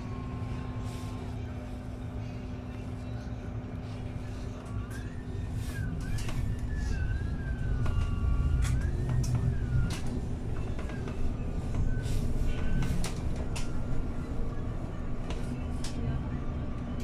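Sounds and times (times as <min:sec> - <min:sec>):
bus rumble on road: 0:00.0 - 0:17.0.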